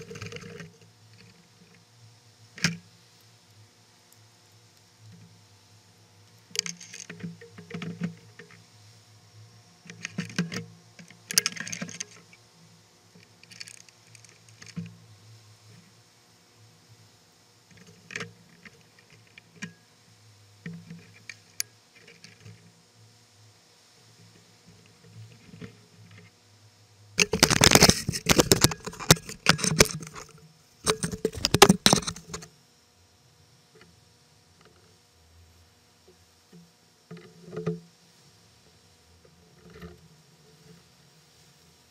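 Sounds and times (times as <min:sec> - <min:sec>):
gear clattering on plastic kayak: 0:00.0 - 0:01.4, 0:06.5 - 0:08.6, 0:09.9 - 0:12.4, 0:13.2 - 0:15.0, 0:17.7 - 0:19.8, 0:20.6 - 0:22.7, 0:27.2 - 0:32.5
camera handling rattling and knocking: 0:06.6 - 0:08.5, 0:09.9 - 0:12.2, 0:27.2 - 0:32.5
hatch lid lifted off: 0:27.2 - 0:32.5.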